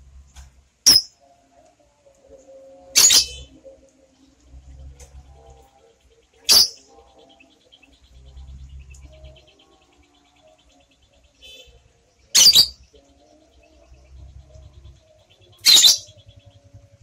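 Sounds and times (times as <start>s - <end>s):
high-pitched bird chirping: 0.9s - 1.2s, 3.0s - 3.6s, 6.4s - 17.0s.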